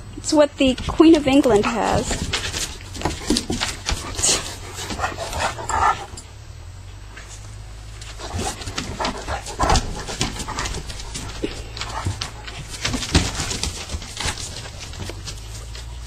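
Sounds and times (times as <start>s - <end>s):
dogs scuffling: 0.2s - 16.0s
dogs making short noises: 1.5s - 6.3s, 8.0s - 15.9s.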